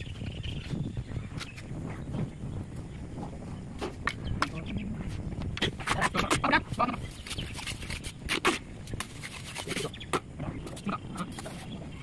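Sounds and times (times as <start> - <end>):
trowel scraping mortar onto brick: 7.2 - 10.0.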